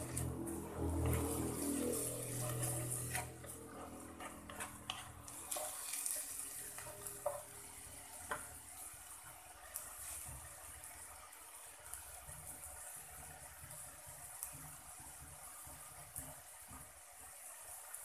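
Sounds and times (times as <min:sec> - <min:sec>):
wooden spatula scraping: 0:00.0 - 0:08.9
meat sizzling in a wok: 0:00.0 - 0:18.0
spatula tapping on pan: 0:06.8 - 0:07.5, 0:08.2 - 0:08.5.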